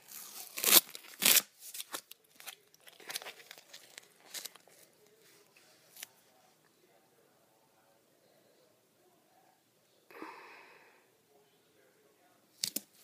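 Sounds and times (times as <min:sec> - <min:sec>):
tape ripping off mat: 0:00.3 - 0:02.0
tape crinkling and tapping: 0:00.6 - 0:04.9, 0:12.6 - 0:13.0.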